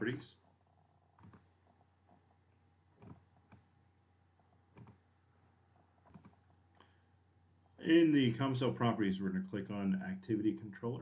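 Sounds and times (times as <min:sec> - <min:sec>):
computer mouse clicks: 0:01.2 - 0:01.5, 0:03.0 - 0:03.7, 0:04.7 - 0:05.0, 0:06.0 - 0:06.6.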